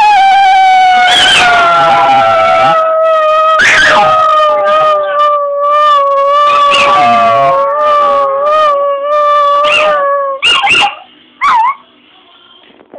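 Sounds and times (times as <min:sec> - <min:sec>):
dog howling: 0:00.0 - 0:11.8
dog yipping: 0:01.0 - 0:08.7, 0:09.4 - 0:11.8.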